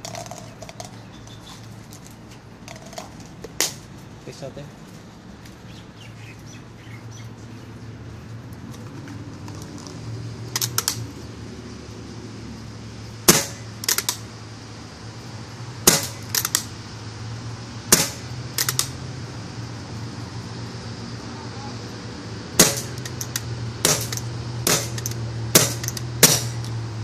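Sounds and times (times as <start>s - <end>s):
paintball marker shots: 13.3s - 14.2s, 15.9s - 16.7s, 17.9s - 18.9s, 22.6s - 26.7s.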